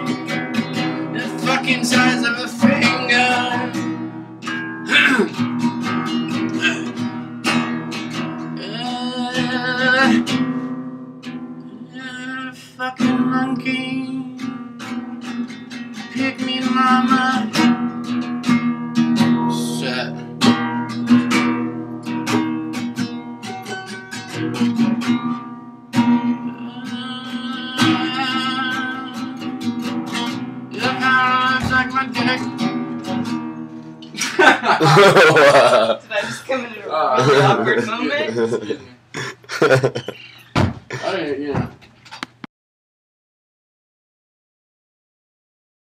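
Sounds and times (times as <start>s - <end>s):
blues guitar plucked notes: 0.0s - 11.7s, 13.0s - 34.1s.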